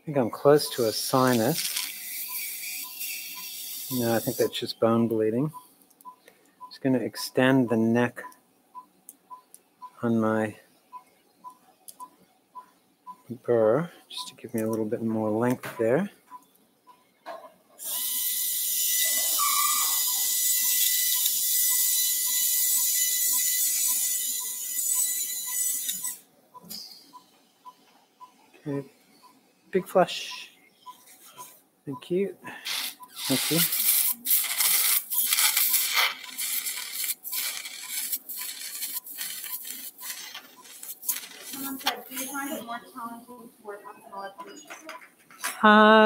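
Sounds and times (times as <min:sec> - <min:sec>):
surgical burr grinding bone: 0:32.7 - 0:42.3.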